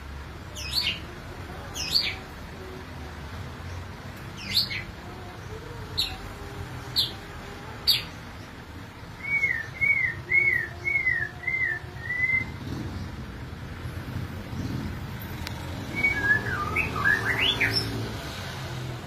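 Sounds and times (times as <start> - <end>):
bird singing high whistles: 15.9 - 17.9.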